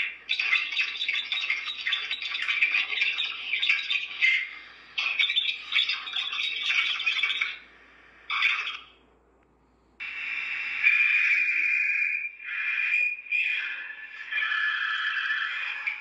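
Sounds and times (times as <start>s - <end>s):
garbled electronic phone noise: 10.0s - 16.0s.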